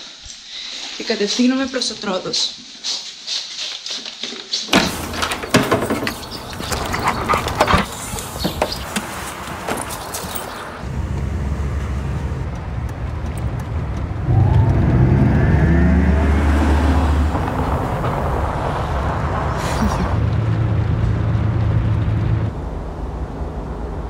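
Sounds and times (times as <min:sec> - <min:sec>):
car engine accelerating: 0:04.9 - 0:24.0.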